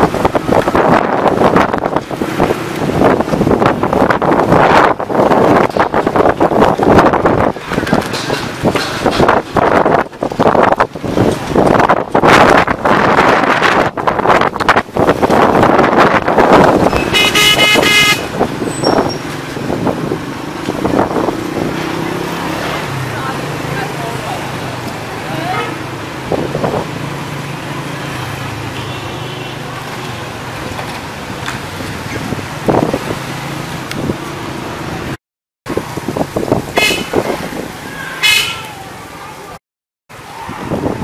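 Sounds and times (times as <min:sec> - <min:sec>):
street traffic noise: 0:00.0 - 0:41.0
vehicle horn: 0:17.0 - 0:19.0, 0:36.8 - 0:37.2, 0:38.2 - 0:38.7.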